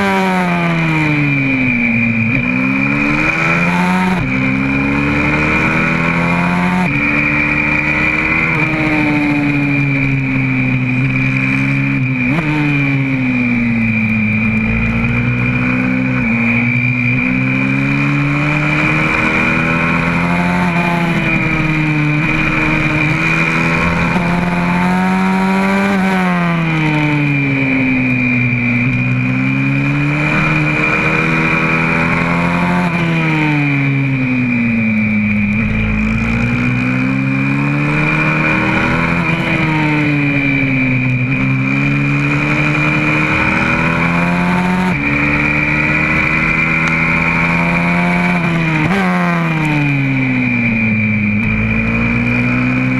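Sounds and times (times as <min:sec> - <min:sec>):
pit bike engine accelerating: 0:00.0 - 0:52.9.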